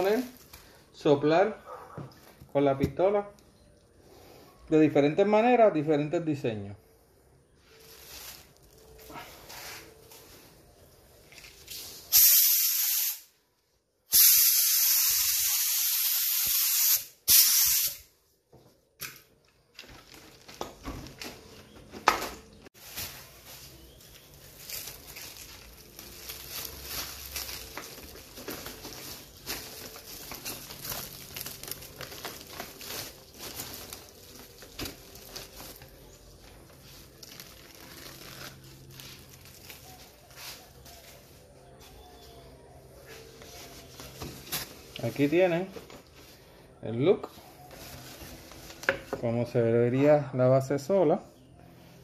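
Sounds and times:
rustling and handling noises: 0.0s - 1.0s, 6.9s - 12.1s, 18.4s - 49.6s
paint spray gun hissing: 12.1s - 13.3s, 14.1s - 18.0s.

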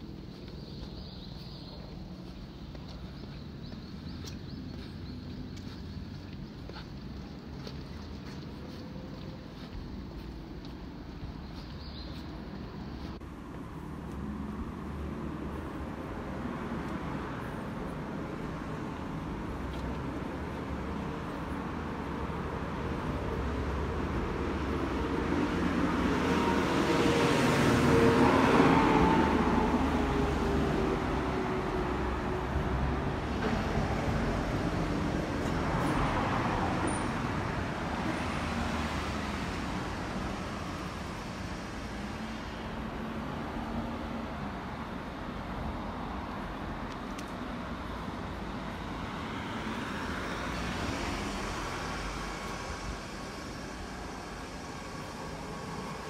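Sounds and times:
vehicle passing by: 13.8s - 44.5s.

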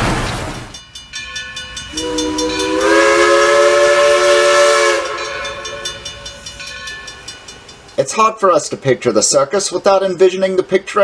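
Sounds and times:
steam locomotive clatter: 0.0s - 8.8s
chime whistle: 0.8s - 7.9s.

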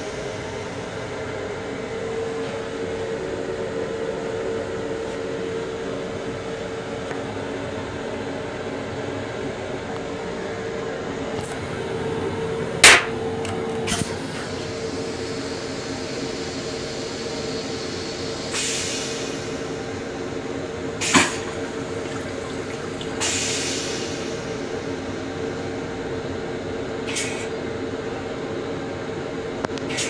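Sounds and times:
electric railcar hum: 0.0s - 30.0s
sharp clack: 12.8s - 13.1s.

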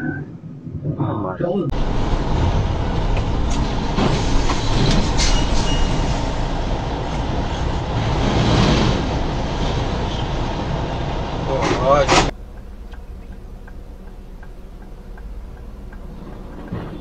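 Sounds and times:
heavy vehicle engine and road noise: 1.7s - 17.0s
rattles and clicks: 11.5s - 17.0s.

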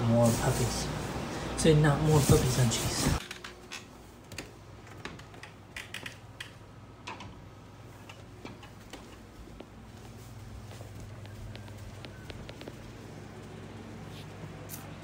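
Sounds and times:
footsteps on carpeted stairs: 8.1s - 14.4s.

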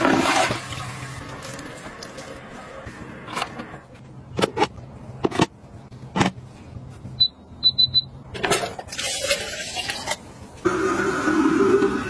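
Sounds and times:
control panel beeping: 7.2s - 8.1s.

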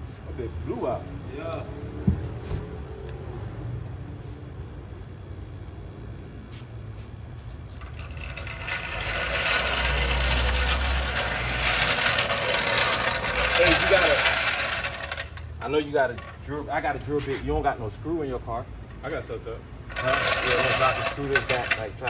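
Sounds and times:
floor jack rolling on asphalt: 7.0s - 22.0s.

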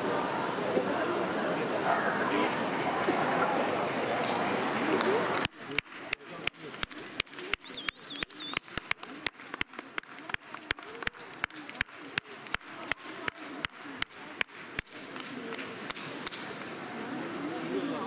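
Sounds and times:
crowd murmur: 0.0s - 18.0s
rhythmic clapping: 4.9s - 16.7s.

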